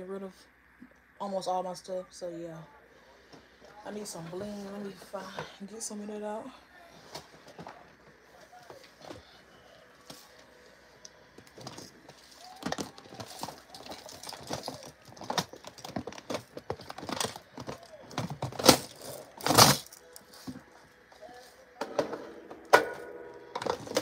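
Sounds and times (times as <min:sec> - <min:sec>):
plastic clatters: 0:11.5 - 0:20.6, 0:21.8 - 0:24.0
plastic containers clicking and rattling: 0:11.5 - 0:20.6, 0:23.6 - 0:24.0.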